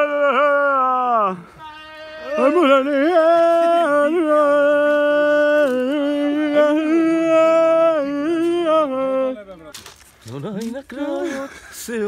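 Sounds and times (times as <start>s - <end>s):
person singing melismatic chant: 0.0s - 9.6s.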